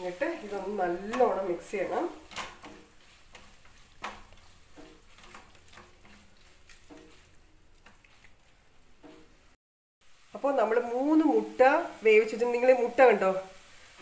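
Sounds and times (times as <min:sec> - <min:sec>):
spatula scraping a pan: 0:00.0 - 0:09.5
faint sizzling: 0:00.0 - 0:14.0.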